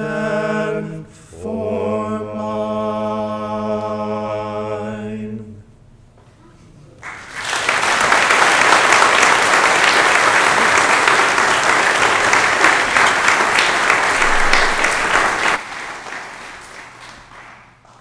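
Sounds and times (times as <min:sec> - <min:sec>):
congregation applauding: 0:07.0 - 0:18.0.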